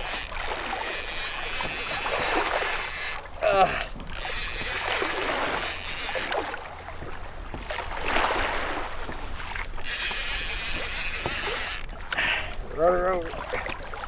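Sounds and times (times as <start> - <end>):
water washing against hull: 0.0 - 14.0.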